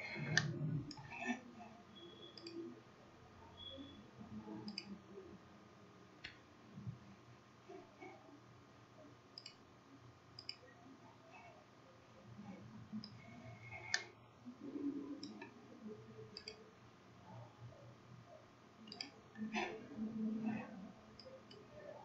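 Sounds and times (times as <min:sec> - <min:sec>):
faint steady hum: 0:00.0 - 0:22.0
computer mouse clicking: 0:00.2 - 0:01.1, 0:02.4 - 0:02.6, 0:04.6 - 0:04.9, 0:09.4 - 0:09.6, 0:10.4 - 0:10.7, 0:13.0 - 0:14.1, 0:15.2 - 0:15.6, 0:16.3 - 0:16.6, 0:18.9 - 0:19.2.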